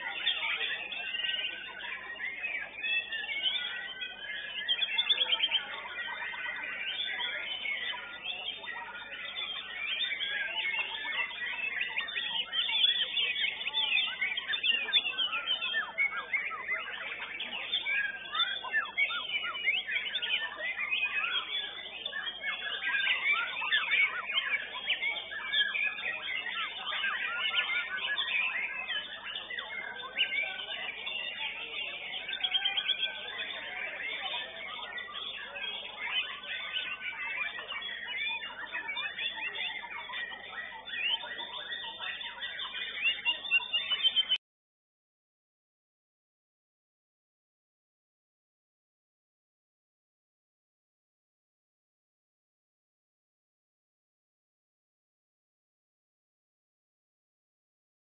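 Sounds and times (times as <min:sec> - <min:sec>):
bird song with rapid whistles: 0:00.0 - 0:44.4.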